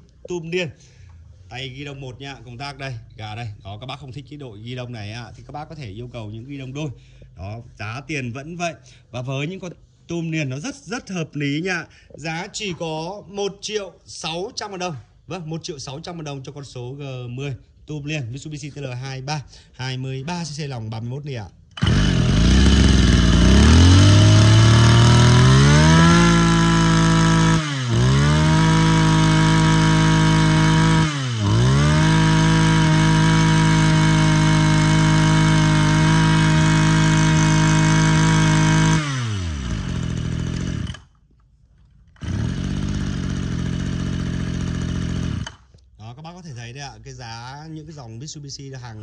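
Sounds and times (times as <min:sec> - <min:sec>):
brush cutter engine revving: 0:21.7 - 0:41.2, 0:42.1 - 0:45.7.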